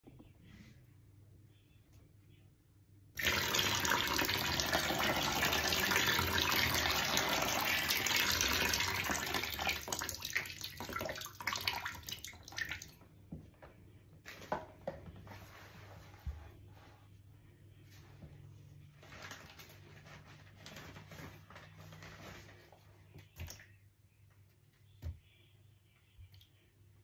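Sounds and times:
water drips and splashes: 0:03.2 - 0:13.0
water pouring into plastic tub: 0:03.2 - 0:13.0.

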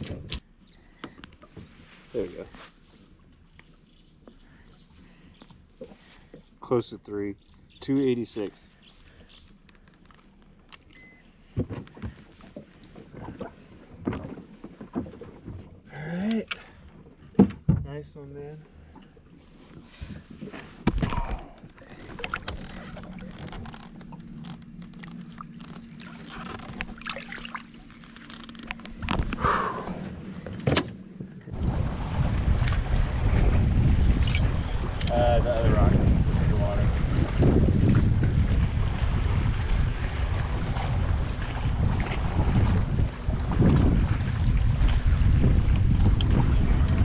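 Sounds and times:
steady low hum: 0:18.1 - 0:47.0
water splashing: 0:20.1 - 0:29.2, 0:31.5 - 0:47.0.

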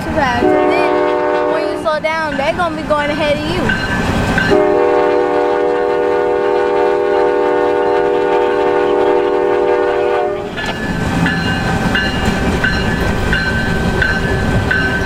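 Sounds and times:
passing locomotive rumble: 0:00.0 - 0:15.0
locomotive air horn: 0:00.4 - 0:01.8, 0:04.5 - 0:10.5
grade-crossing bell ringing: 0:01.6 - 0:04.8, 0:10.4 - 0:15.0.

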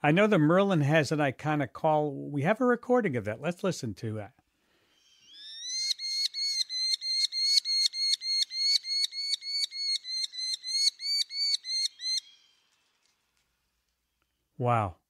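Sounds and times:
falcon calling high notes: 0:05.0 - 0:13.0.

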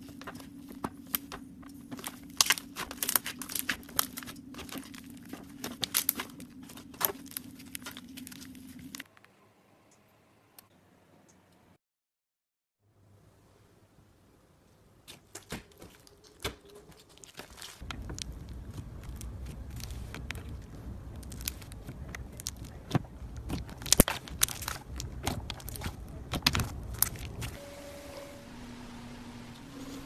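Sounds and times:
low handling rumble: 0:17.8 - 0:30.0.

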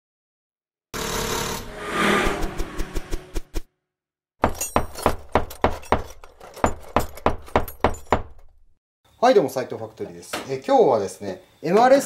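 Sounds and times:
whoosh: 0:01.5 - 0:03.7.

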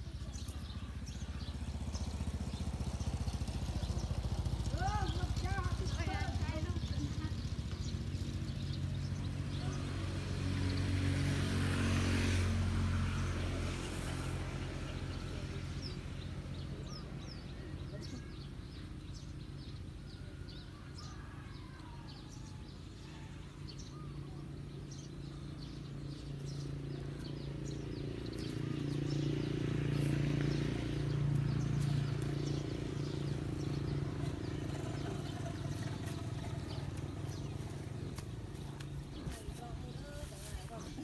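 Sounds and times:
small birds chirping: 0:00.0 - 0:41.0.

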